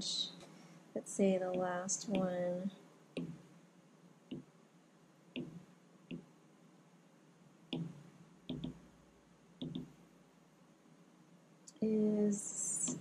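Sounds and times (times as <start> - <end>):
stylus tapping on glass screen: 3.2 - 3.5, 5.4 - 6.3, 7.7 - 8.8, 9.6 - 9.9.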